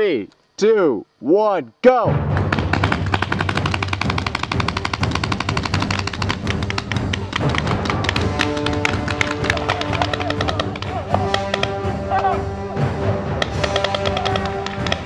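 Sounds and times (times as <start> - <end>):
paintball markers firing: 2.4 - 11.8, 13.4 - 15.0.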